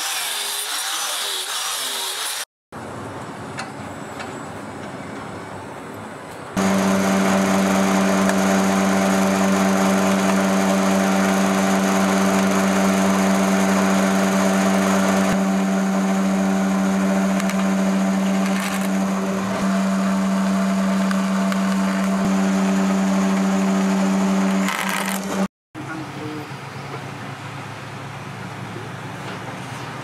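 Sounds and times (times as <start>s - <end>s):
drill press motor humming: 6.6s - 25.5s.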